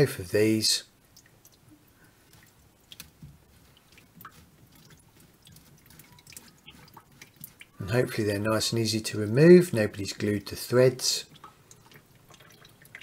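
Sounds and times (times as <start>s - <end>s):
water dripping into plastic bucket: 0.9s - 8.2s, 11.2s - 13.0s.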